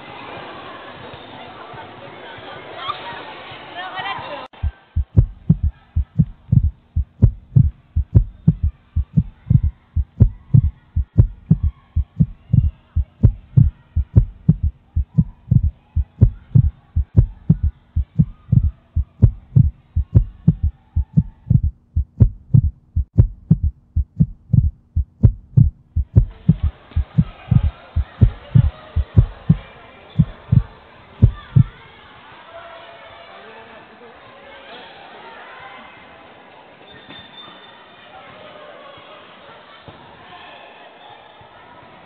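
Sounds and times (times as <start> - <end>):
heartbeat low thumps: 4.6 - 31.8.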